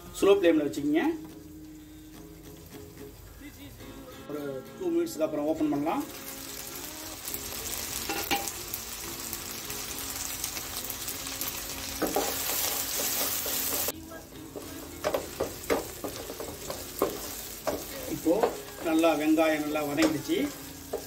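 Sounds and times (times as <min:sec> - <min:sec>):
vegetables sizzling in oil: 0:00.0 - 0:21.0
spatula scraping pan: 0:12.0 - 0:19.2.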